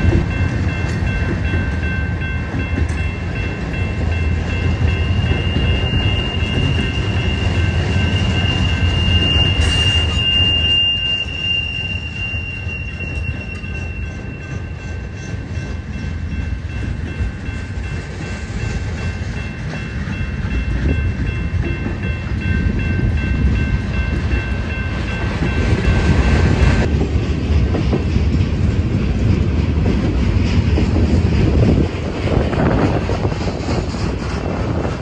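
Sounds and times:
train cars clattering: 0:00.0 - 0:35.0
train wheels rumbling on rail: 0:00.0 - 0:35.0
high wheel squeal: 0:04.9 - 0:15.4.

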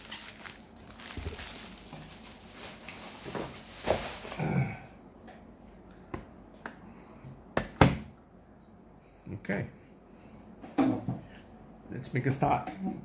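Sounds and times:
bubble wrap rustling and crinkling: 0:00.0 - 0:04.8
short hum-like vocal sound: 0:04.2 - 0:05.1.

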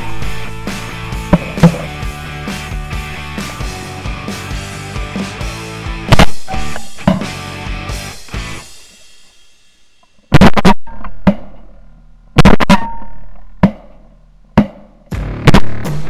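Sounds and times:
rock music: 0:00.0 - 0:09.6, 0:15.1 - 0:16.0.

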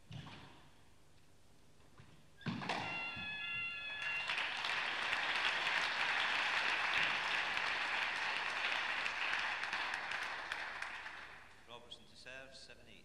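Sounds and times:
spectators applauding: 0:02.7 - 0:11.6.

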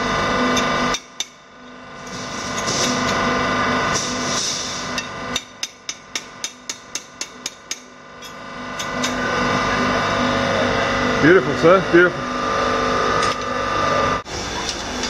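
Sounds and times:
machine whirring: 0:00.0 - 0:15.0
hammer striking blade on anvil: 0:04.9 - 0:09.2.

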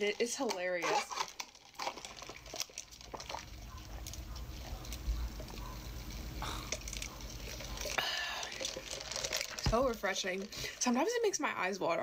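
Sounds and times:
person sipping through a straw: 0:01.1 - 0:10.9.

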